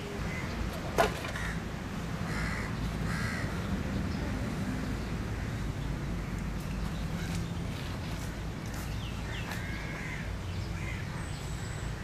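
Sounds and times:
low background noise: 0.0 - 12.0
crow cawing: 1.3 - 1.6, 2.3 - 3.6, 9.2 - 11.2.

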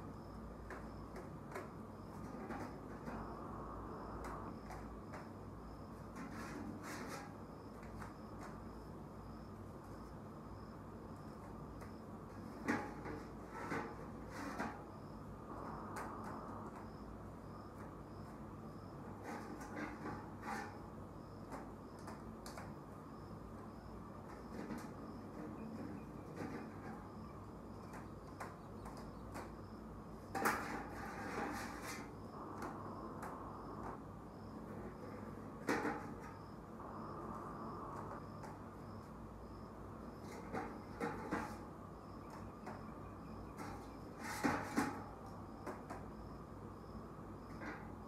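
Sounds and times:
cricket chirping: 0.0 - 48.0
egg trays knocking and clattering: 11.3 - 15.1, 17.6 - 36.6, 40.2 - 48.0.

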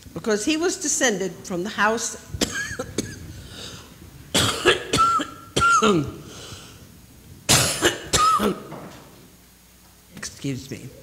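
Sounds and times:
person coughing: 2.4 - 3.3, 4.3 - 6.4, 7.5 - 8.8.

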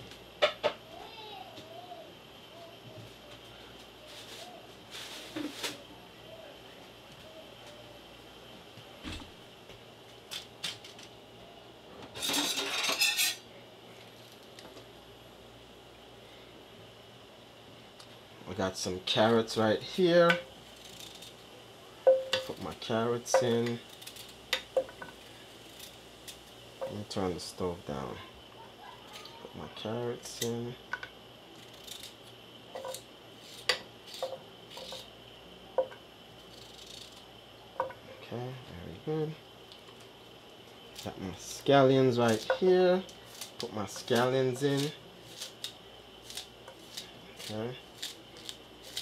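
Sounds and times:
kitchen utensils clinking: 12.2 - 13.4
metal utensils scraping pots: 12.2 - 13.4
butter sizzling: 17.2 - 38.1, 39.5 - 49.0.

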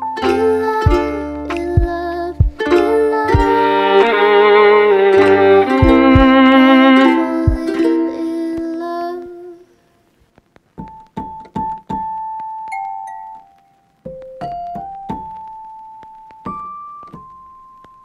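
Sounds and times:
music with held notes: 0.0 - 9.5.

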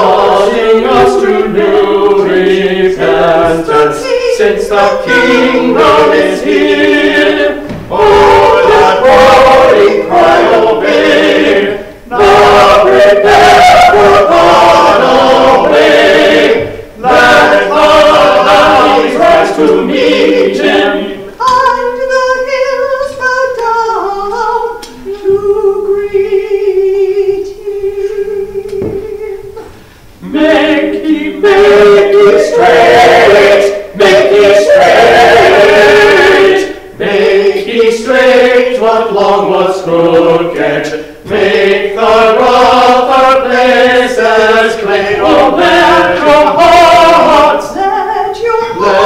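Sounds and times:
choir singing a hymn: 0.0 - 49.0.

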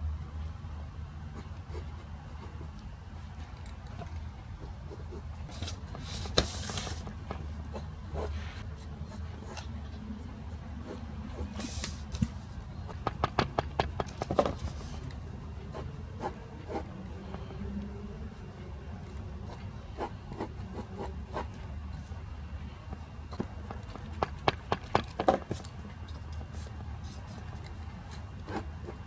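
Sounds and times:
paper rustling: 5.5 - 7.4
pencil drawing on paper: 19.1 - 21.6.

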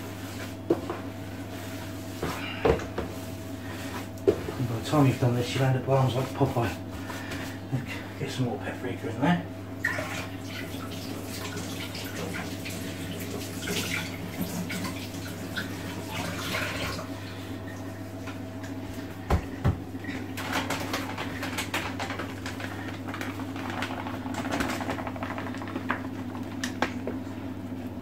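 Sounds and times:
water splashing in a sink: 9.8 - 17.8.

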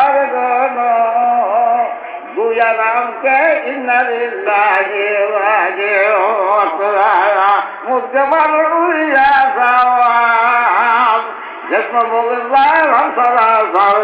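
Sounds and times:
man singing slow song: 0.0 - 14.0.

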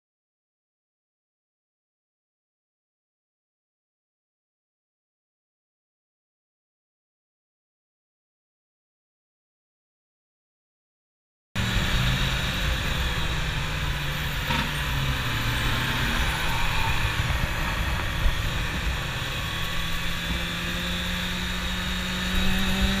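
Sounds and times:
motorcycle engine running: 11.6 - 23.0
wind rushing over microphone: 11.6 - 23.0.

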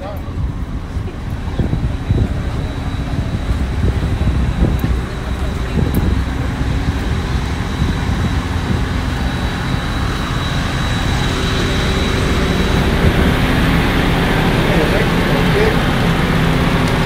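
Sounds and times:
faint steady whine: 0.0 - 17.0
ferry engines rumbling: 0.0 - 17.0.

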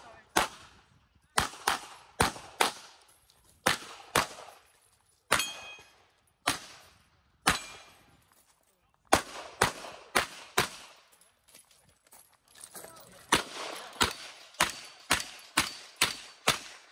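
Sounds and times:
pistol gunshots: 0.3 - 3.0, 3.6 - 4.6, 5.3 - 8.0, 9.1 - 11.0, 13.3 - 16.9.

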